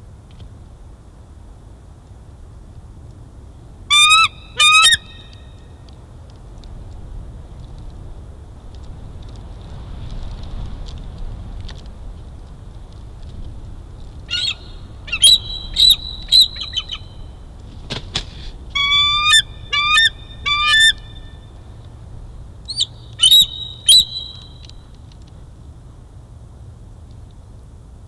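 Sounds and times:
eagle calling: 0:03.9 - 0:05.4, 0:14.3 - 0:17.2, 0:18.8 - 0:21.4, 0:22.7 - 0:24.7.

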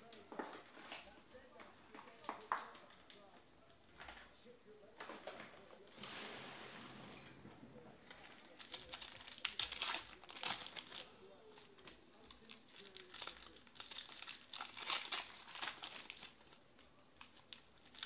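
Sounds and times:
wrappers tearing and crinkling: 0:08.0 - 0:16.6, 0:17.2 - 0:18.0.

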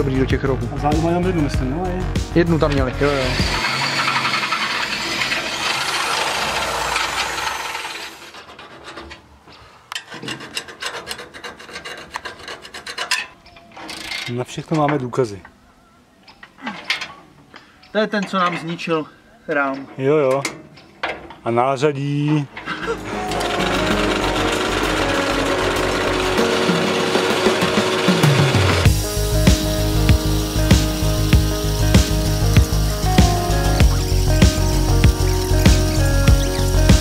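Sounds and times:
electric drill boring into steel: 0:02.9 - 0:08.4, 0:22.8 - 0:37.0
scraping strokes on metal: 0:03.1 - 0:14.3.

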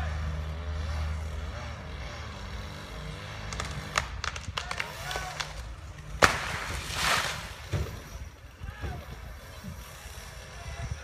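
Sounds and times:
engine running low: 0:00.0 - 0:11.0
tree trunk cracking and popping: 0:03.5 - 0:07.7
faint voices: 0:08.1 - 0:11.0.

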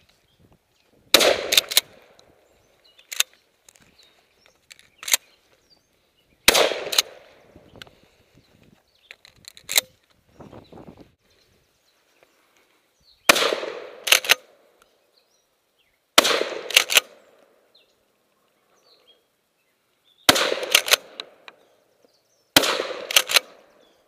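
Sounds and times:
shotgun shots: 0:01.1 - 0:02.1, 0:06.5 - 0:07.4, 0:13.3 - 0:14.6, 0:16.2 - 0:17.2, 0:20.3 - 0:21.4, 0:22.6 - 0:23.7
shotgun pump clacks: 0:01.2 - 0:02.0, 0:04.7 - 0:05.2, 0:09.1 - 0:09.9, 0:14.0 - 0:14.4, 0:16.6 - 0:17.1, 0:20.5 - 0:21.3, 0:23.0 - 0:23.6.

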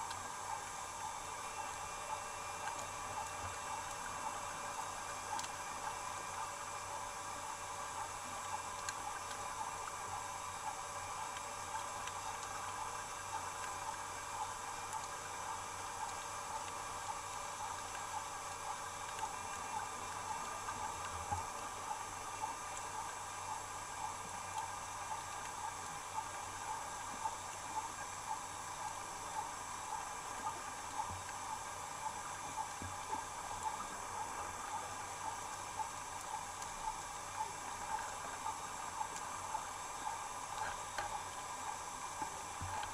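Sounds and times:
faint clicks: 0:04.7 - 0:06.0, 0:22.4 - 0:42.9.

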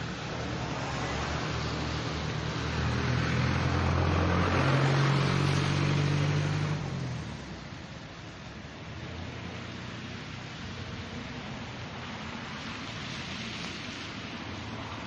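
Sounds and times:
road noise: 0:00.0 - 0:15.0
vehicle engine passing: 0:00.8 - 0:07.6.

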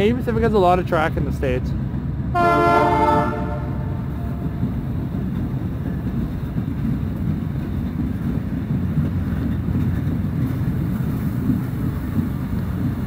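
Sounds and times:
train wheels rumbling on rail: 0:00.0 - 0:13.0
train horn: 0:02.4 - 0:04.5.

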